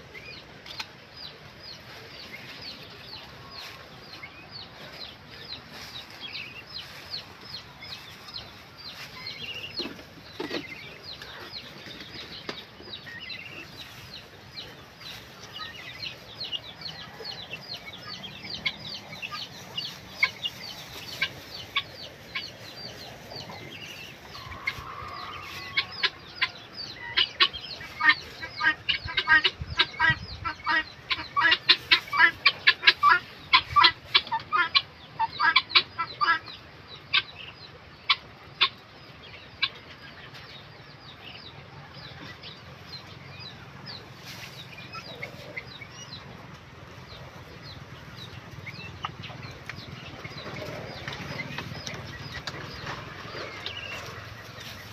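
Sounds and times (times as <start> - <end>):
guinea fowl chattering: 1.6 - 40.4.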